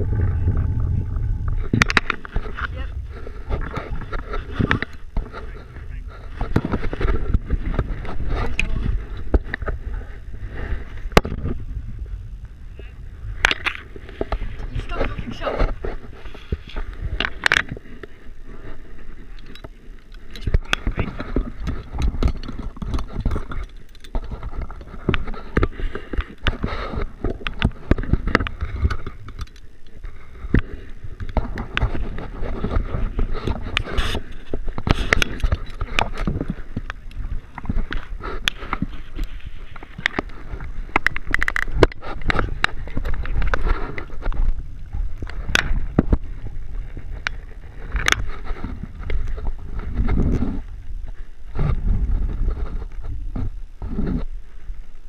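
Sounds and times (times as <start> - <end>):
low rumble: 0.0 - 19.4
rubbing against rope and gear: 1.6 - 11.0, 20.2 - 44.6, 45.8 - 54.3.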